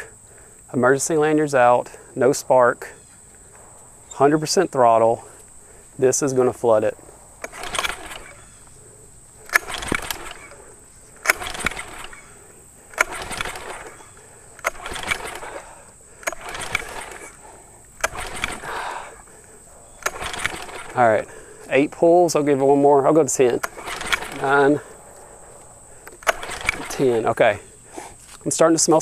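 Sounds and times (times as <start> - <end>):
starter rope whirring: 3.3 - 29.0.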